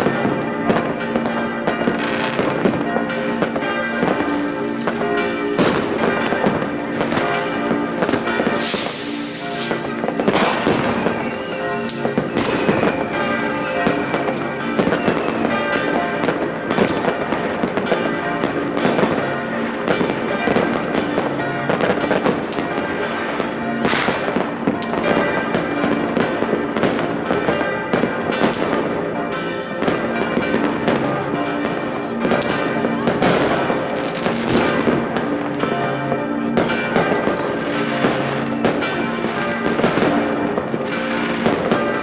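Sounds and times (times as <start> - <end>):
fireworks banging and crackling: 0.0 - 42.0
loud firework bangs: 8.0 - 13.0, 32.2 - 35.5.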